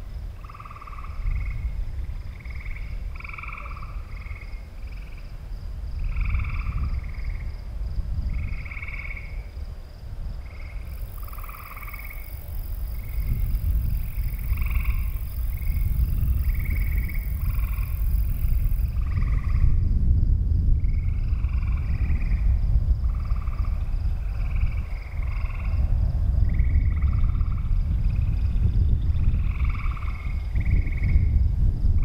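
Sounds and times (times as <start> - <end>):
frogs croaking: 0.0 - 19.9, 20.8 - 31.4
low rumble: 12.7 - 32.0.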